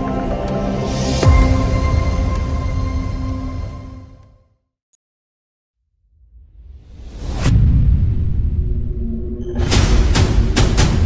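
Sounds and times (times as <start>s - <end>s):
background music with sustained tones: 0.0s - 4.4s.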